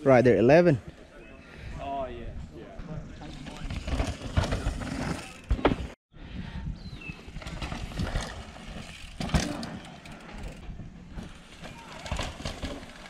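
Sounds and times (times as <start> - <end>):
bikes clattering: 2.8 - 6.0, 7.2 - 13.0
wind rumble on microphone: 6.1 - 8.8.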